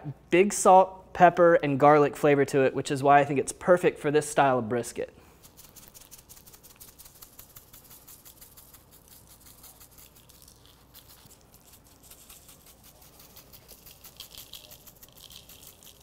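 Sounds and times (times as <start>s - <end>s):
spice rub pattering on meat: 5.3s - 16.0s.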